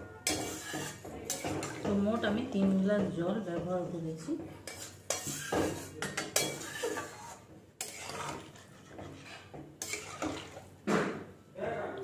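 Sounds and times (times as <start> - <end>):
metal ladle scraping pan: 0.0 - 2.6, 4.4 - 10.8.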